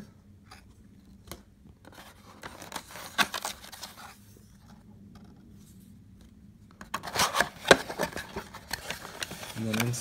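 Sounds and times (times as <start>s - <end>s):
paper and cardboard rustling: 1.8s - 4.7s, 6.8s - 10.0s.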